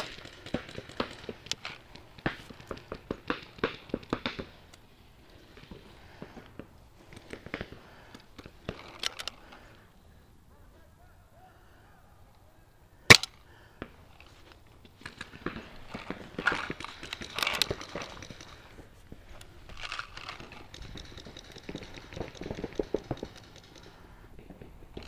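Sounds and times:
paintball marker shots: 0:00.0 - 0:04.8, 0:13.1 - 0:14.0
clicks and crackling rustle: 0:00.0 - 0:09.8, 0:13.1 - 0:25.0.

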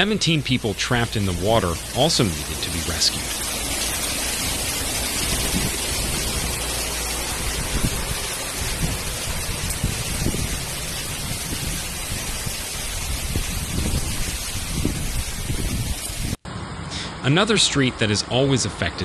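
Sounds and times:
floodwater rushing: 0:00.0 - 0:19.0.

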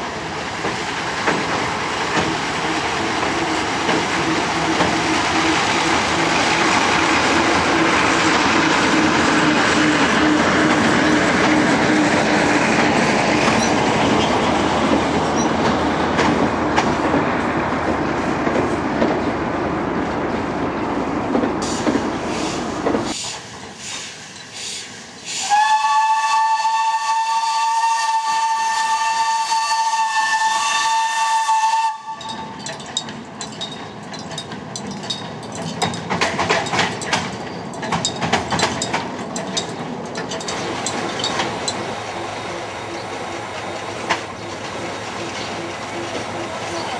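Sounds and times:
train rumbling over bridge: 0:00.0 - 0:46.9
wheels clicking over rail joints: 0:00.5 - 0:19.3, 0:32.2 - 0:46.9
locomotive horn: 0:25.4 - 0:32.5.

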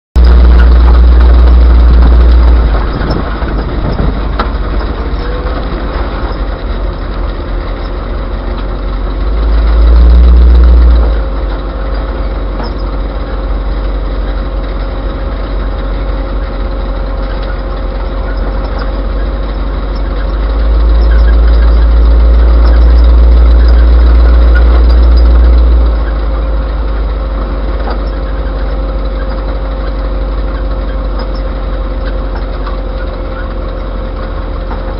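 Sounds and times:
engine and road noise: 0:00.1 - 0:34.9
thin steady whine: 0:00.2 - 0:11.3
heavy low rumbles: 0:00.2 - 0:34.9.

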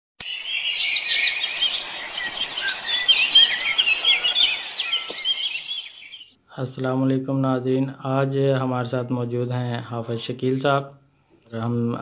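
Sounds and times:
small birds chirping and whistling: 0:00.2 - 0:06.4.

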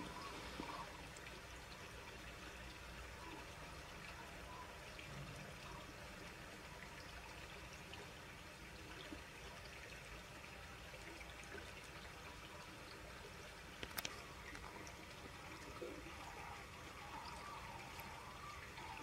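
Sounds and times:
stream trickling: 0:00.0 - 0:19.0
faint ticks: 0:13.7 - 0:14.7.

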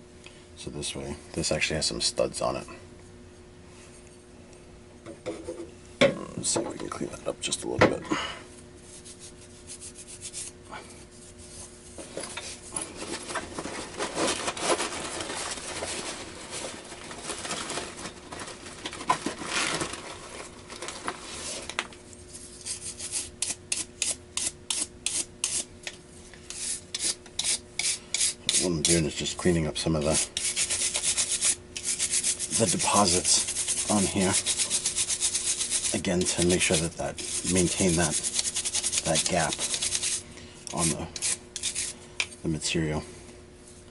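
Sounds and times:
scrubbing metal plate: 0:30.0 - 0:40.2.

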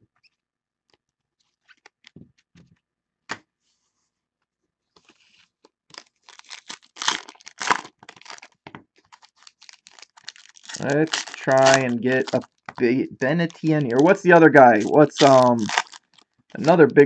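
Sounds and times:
foil pack crinkling and ripping: 0:05.8 - 0:17.0.

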